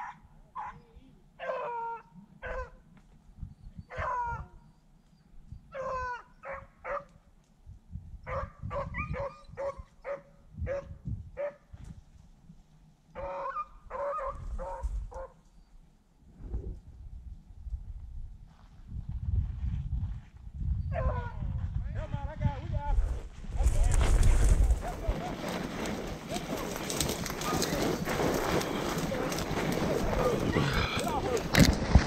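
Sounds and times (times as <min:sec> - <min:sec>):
dogs barking: 0:00.0 - 0:00.8, 0:01.4 - 0:02.8, 0:03.9 - 0:04.4, 0:05.7 - 0:07.1, 0:08.3 - 0:11.6, 0:13.2 - 0:15.4
hounds baying: 0:00.0 - 0:02.8, 0:05.7 - 0:07.0, 0:13.2 - 0:15.4
rustling of brush: 0:23.1 - 0:32.0.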